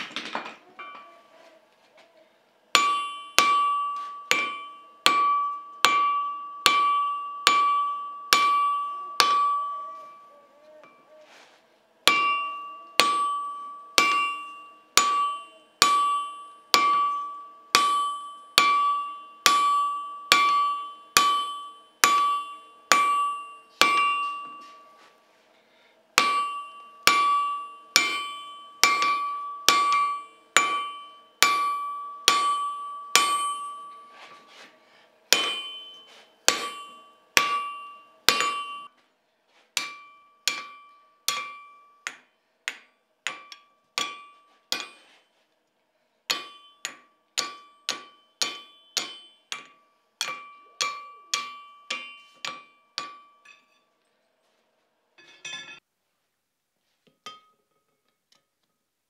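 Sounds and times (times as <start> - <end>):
anvil ringing: 0.6 - 1.3, 2.7 - 11.2, 12.1 - 25.1, 26.2 - 39.0, 39.8 - 45.2, 46.3 - 53.9, 55.2 - 55.8
hammer striking steel on anvil: 2.7 - 11.1, 12.0 - 25.1, 26.2 - 39.0, 39.7 - 45.3, 46.3 - 54.0, 55.2 - 55.8, 57.2 - 57.9.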